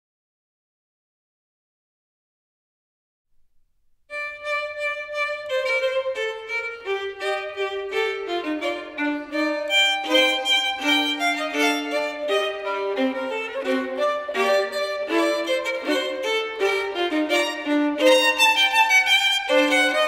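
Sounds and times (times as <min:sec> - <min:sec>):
violin melody: 0:04.1 - 0:20.0.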